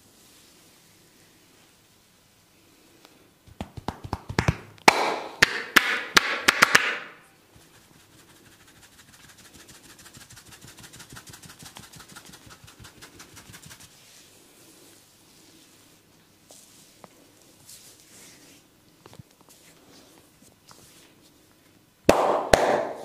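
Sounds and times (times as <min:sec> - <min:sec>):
hands pattering on scalp: 0:03.5 - 0:04.6, 0:07.6 - 0:14.2.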